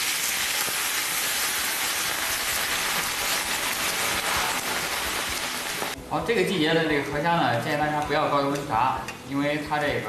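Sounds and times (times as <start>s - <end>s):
shrimp sizzling in hot oil: 0.0s - 6.0s.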